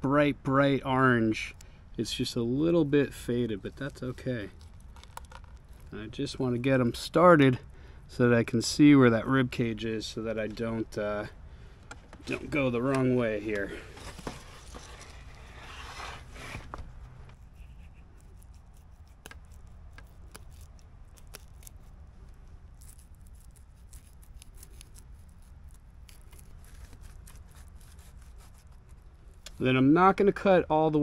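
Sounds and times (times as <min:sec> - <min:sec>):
knife scraping fish: 0:17.4 - 0:21.8, 0:22.8 - 0:28.9.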